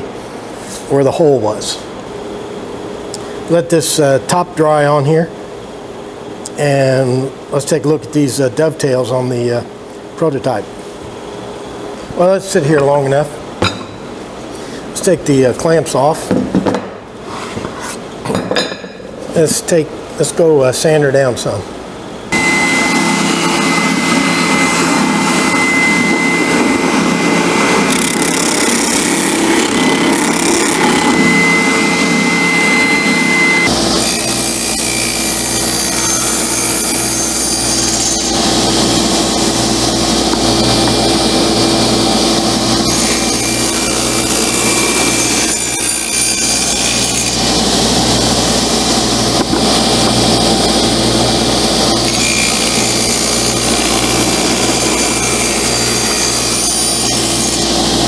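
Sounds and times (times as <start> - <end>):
spindle sander running: 22.3 - 58.0
table saw cutting wood: 22.3 - 58.0.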